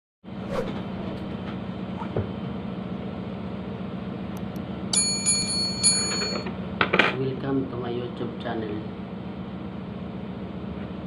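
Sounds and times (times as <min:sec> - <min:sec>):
low hum and hiss: 0:00.8 - 0:10.7
bright ringing bell chime: 0:04.9 - 0:06.5.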